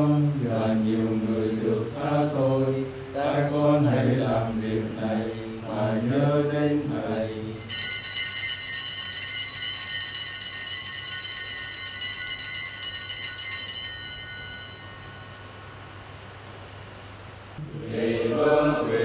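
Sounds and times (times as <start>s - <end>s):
altar bells ringing: 7.6s - 16.2s.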